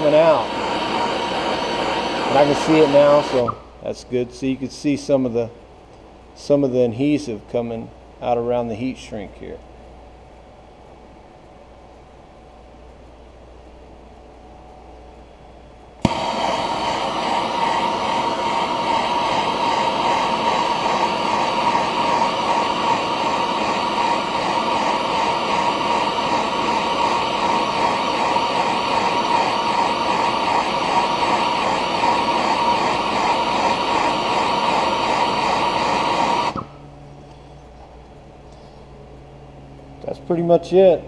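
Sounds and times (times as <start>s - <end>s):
gas torch hissing: 0.0s - 4.0s, 16.0s - 36.9s.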